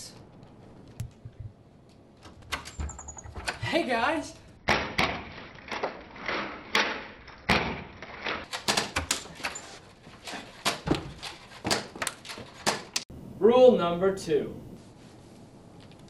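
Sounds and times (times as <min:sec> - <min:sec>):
door handle rattling: 0:02.2 - 0:03.6
foam darts popping and thudding: 0:04.7 - 0:05.9, 0:06.7 - 0:08.0.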